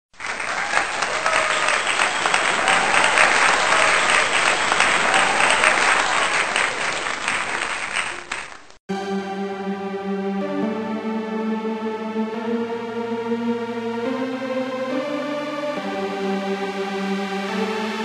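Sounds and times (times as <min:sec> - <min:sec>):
audience clapping: 0:00.1 - 0:08.8
voices in crowd: 0:00.5 - 0:07.6.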